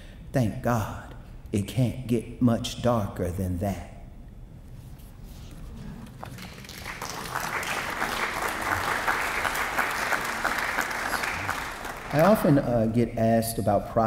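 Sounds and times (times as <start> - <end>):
audience applauding: 6.2 - 12.7.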